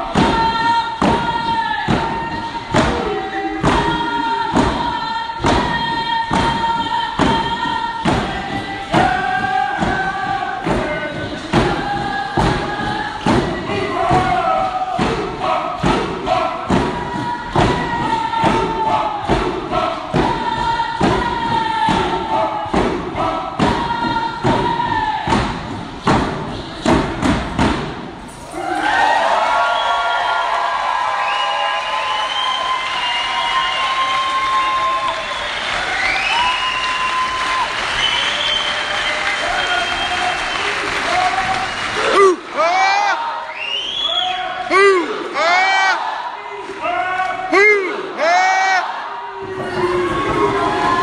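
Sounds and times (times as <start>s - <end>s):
frame drums beating: 0.0s - 28.3s
group singing in unison: 0.0s - 28.9s.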